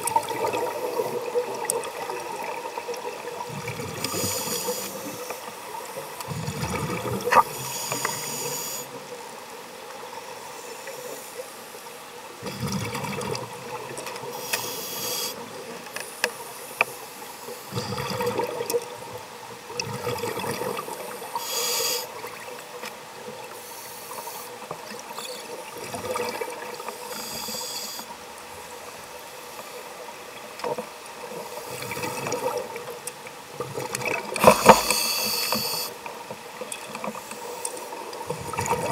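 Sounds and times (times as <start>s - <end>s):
exhaust bubbles underwater: 0.0s - 5.2s, 6.2s - 7.6s, 12.4s - 14.3s, 38.2s - 38.9s
regulator hissing inhalations: 4.0s - 5.4s, 7.5s - 9.0s, 14.3s - 15.4s, 21.2s - 22.2s, 27.1s - 28.1s, 34.4s - 36.0s.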